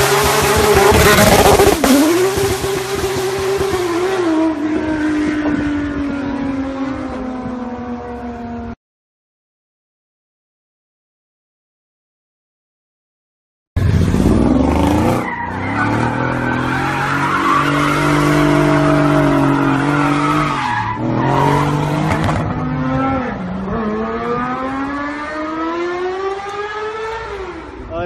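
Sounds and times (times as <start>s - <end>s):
car engine revving: 0.0s - 8.7s, 13.8s - 27.9s
car accelerating: 0.0s - 8.8s, 13.8s - 27.9s
tyre squeal: 15.2s - 21.9s.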